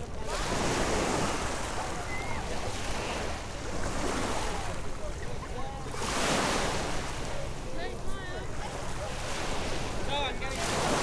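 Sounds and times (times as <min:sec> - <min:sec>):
small waves on shingle beach: 0:09.2 - 0:11.0.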